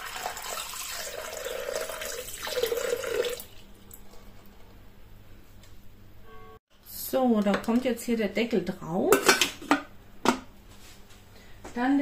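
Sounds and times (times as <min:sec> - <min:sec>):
water pouring into steel bowl: 0:00.0 - 0:03.6.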